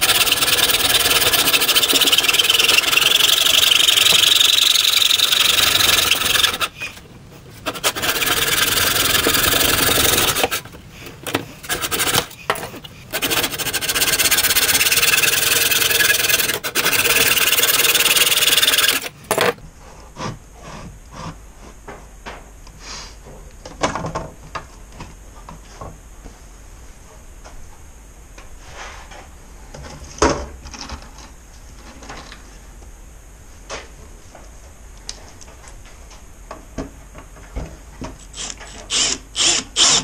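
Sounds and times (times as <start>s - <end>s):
hand saw scraping strokes: 0.0s - 7.0s, 7.6s - 19.1s.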